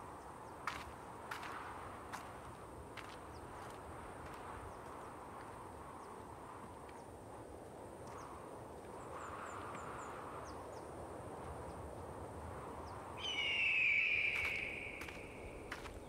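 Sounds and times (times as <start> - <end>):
wind: 0.0 - 16.0
loud high bird cry: 13.2 - 15.7.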